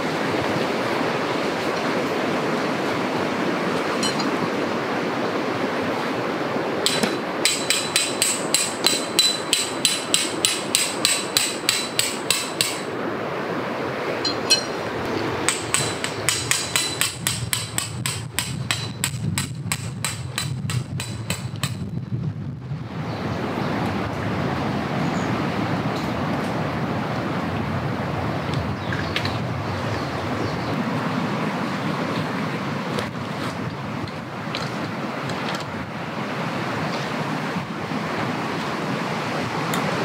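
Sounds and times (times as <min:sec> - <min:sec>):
steady rushing noise: 0:00.0 - 0:28.8
tent pegs hammered into ground: 0:06.8 - 0:12.9.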